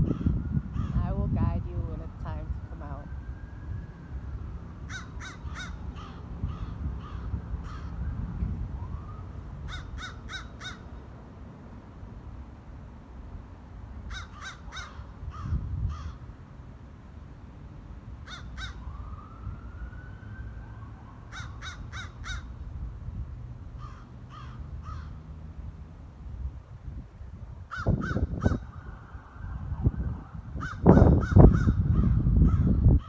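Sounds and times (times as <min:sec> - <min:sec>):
low rumbling on microphone: 0:00.0 - 0:03.8, 0:26.3 - 0:33.0
crows cawing: 0:04.9 - 0:08.0, 0:09.7 - 0:10.9, 0:14.1 - 0:16.2, 0:18.2 - 0:18.8, 0:21.3 - 0:22.5, 0:23.8 - 0:25.2, 0:27.7 - 0:28.8, 0:30.6 - 0:32.8.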